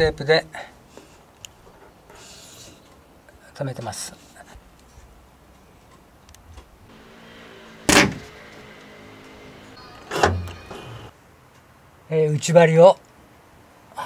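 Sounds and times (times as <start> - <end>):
rear gate clunks: 7.6 - 11.1.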